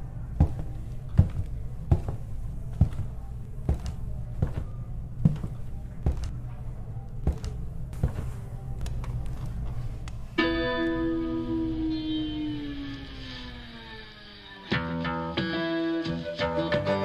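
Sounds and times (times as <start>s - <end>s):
steady low hum: 0.0s - 16.5s
boot heels on wooden floor: 0.4s - 6.4s, 7.2s - 8.4s.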